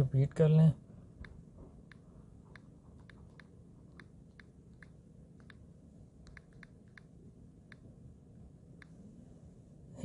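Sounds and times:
phone keyboard taps clicking: 6.2 - 7.1.

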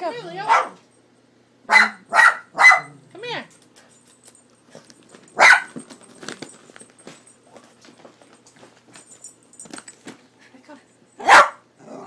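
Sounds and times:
dog barking: 0.4 - 0.8, 1.7 - 3.0, 5.4 - 5.8, 11.2 - 11.7.

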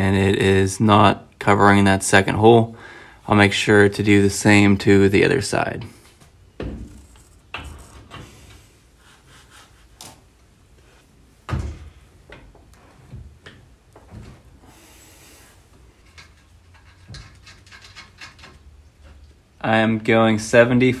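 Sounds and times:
metal clunks and scrapes: 15.9 - 18.6.

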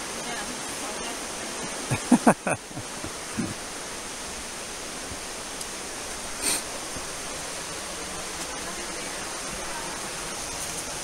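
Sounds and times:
creek and waterfall rushing: 0.0 - 11.0.

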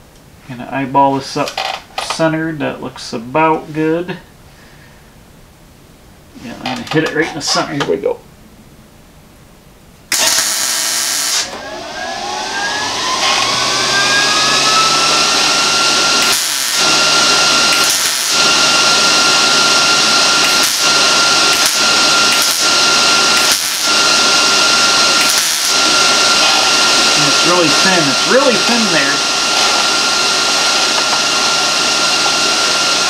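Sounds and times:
electric motor whining: 10.1 - 33.0.

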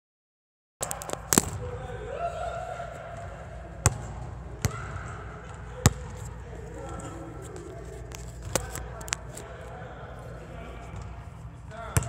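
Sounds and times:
basketball bouncing on gym floor: 0.8 - 1.8, 3.8 - 6.3.

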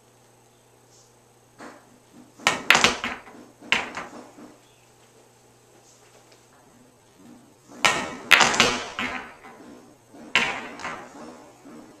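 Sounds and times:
pool balls clacking: 1.6 - 4.6, 6.5 - 12.0.

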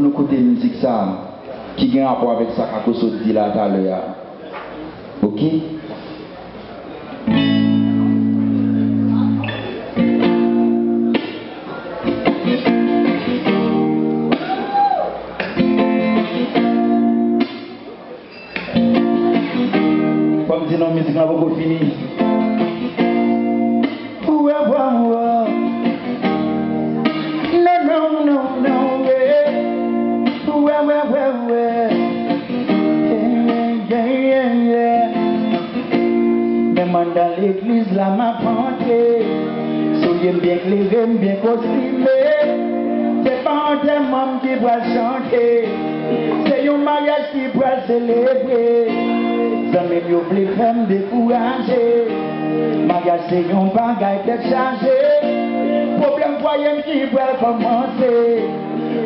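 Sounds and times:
acoustic guitar strumming chords: 7.2 - 14.6, 15.2 - 59.0
man singing: 20.4 - 22.4, 24.0 - 25.9, 27.2 - 35.6, 36.7 - 59.0.

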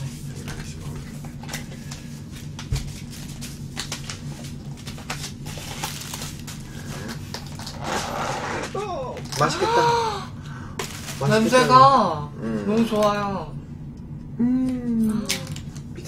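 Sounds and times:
plastic packaging crinkling: 2.5 - 8.1, 10.8 - 11.6.

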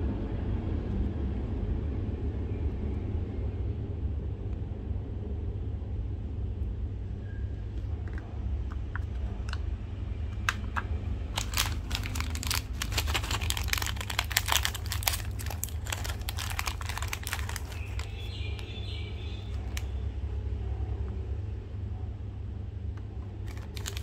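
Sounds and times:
packaging crinkling: 10.4 - 20.0, 23.2 - 24.0.

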